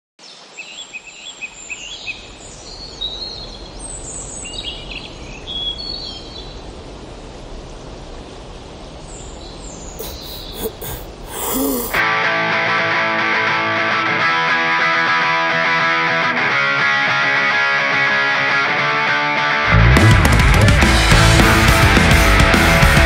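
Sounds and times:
background hiss: 0:00.2 - 0:12.0
small birds chirping: 0:09.0 - 0:12.0.

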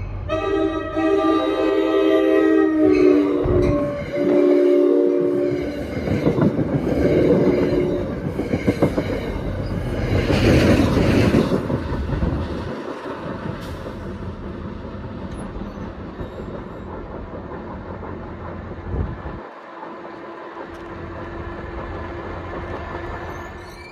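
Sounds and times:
diesel locomotive passing: 0:00.0 - 0:23.9
train horn blast: 0:00.2 - 0:06.0, 0:06.9 - 0:08.2
train wheels clattering on rails: 0:05.3 - 0:23.9.

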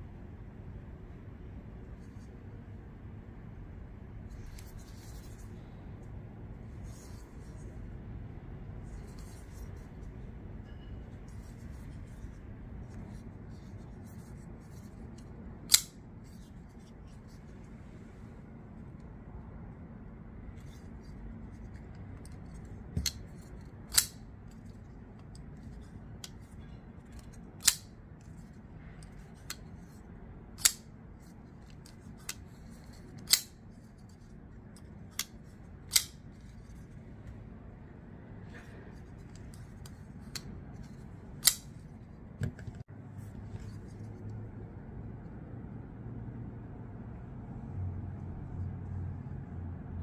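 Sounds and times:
folding knife blade clicking: 0:15.7 - 0:16.0, 0:23.9 - 0:24.2, 0:27.6 - 0:27.9, 0:30.6 - 0:30.8, 0:33.2 - 0:33.6, 0:35.9 - 0:36.2, 0:41.4 - 0:41.7.

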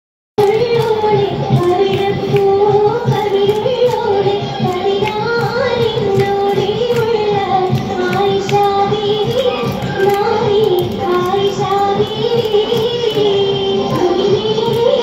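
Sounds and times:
rhythmic handclaps: 0:00.4 - 0:15.0
person singing high melody: 0:08.0 - 0:15.0.

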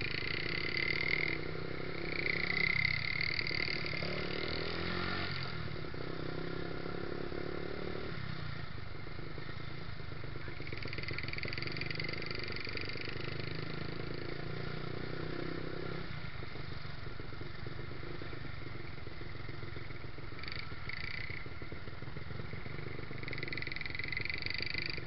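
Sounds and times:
motorcycle engine at low speed: 0:00.0 - 0:25.0.

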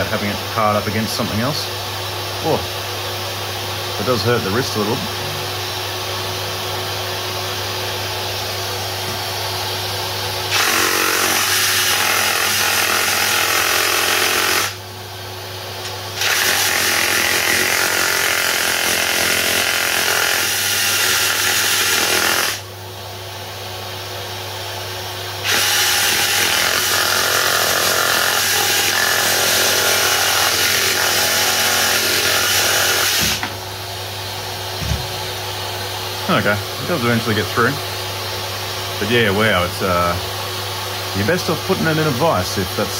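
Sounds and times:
reciprocating saw cutting timber: 0:10.5 - 0:14.8, 0:16.2 - 0:22.6, 0:25.4 - 0:33.4.

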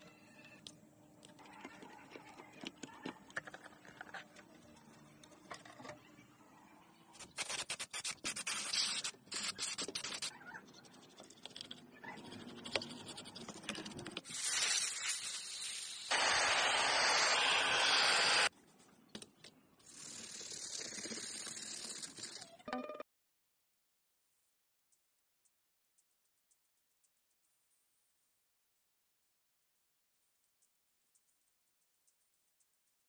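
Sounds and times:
brush scrubbing circuit board: 0:14.3 - 0:18.5.

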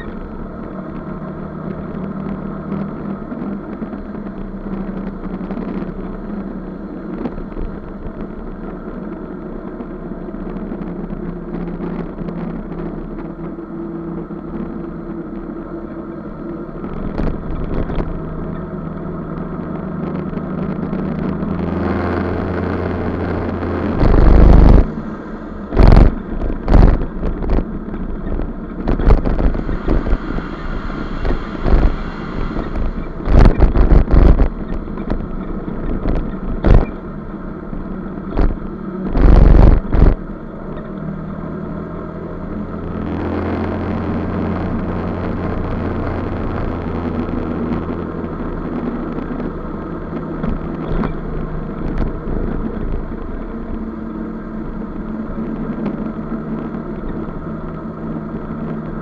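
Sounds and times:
scooter engine running: 0:00.0 - 0:08.7, 0:15.8 - 0:40.9
road and wind noise: 0:00.0 - 0:59.0
loud rushes of noise: 0:20.0 - 0:37.5.

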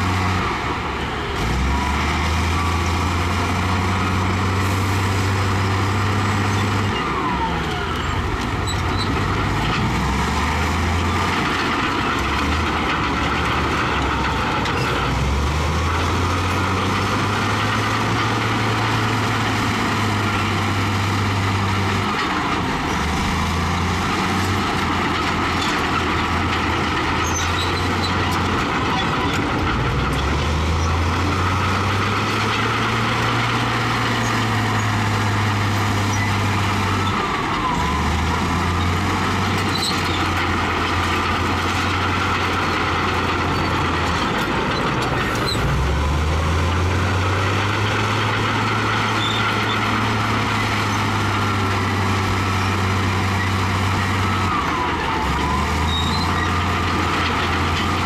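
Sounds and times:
bulldozer diesel engine: 0:00.0 - 0:58.0.

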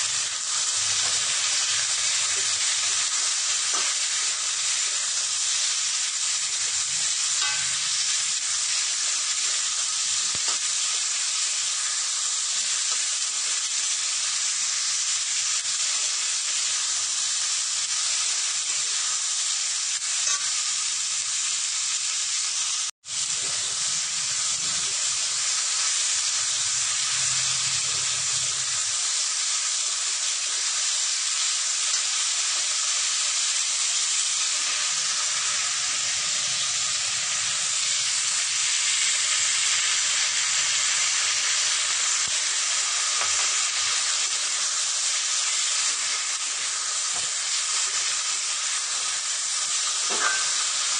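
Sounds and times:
beans sizzling in hot oil: 0:00.0 - 0:50.9
metal spatula turning food: 0:00.7 - 0:05.6, 0:06.6 - 0:11.0, 0:50.0 - 0:50.7.

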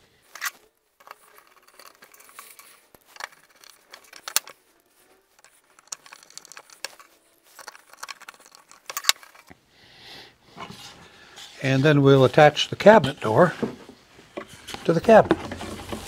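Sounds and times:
metallic hinge clicks and clinks: 0:00.3 - 0:04.6, 0:05.3 - 0:09.5.

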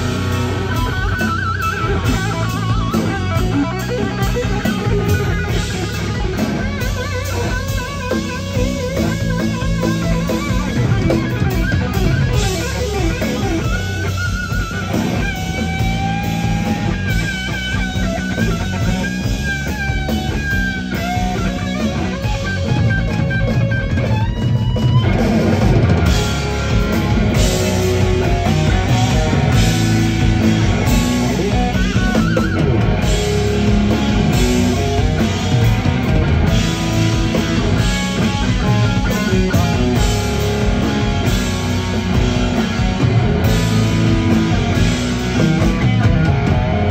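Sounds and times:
drum kit beat: 0:00.0 - 0:46.9
lead electric guitar bending notes: 0:00.0 - 0:46.9.

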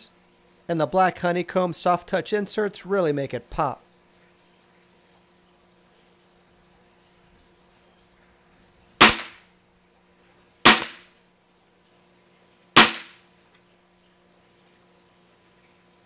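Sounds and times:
air rifle shots: 0:09.0 - 0:09.4, 0:10.7 - 0:11.1, 0:12.8 - 0:13.2.

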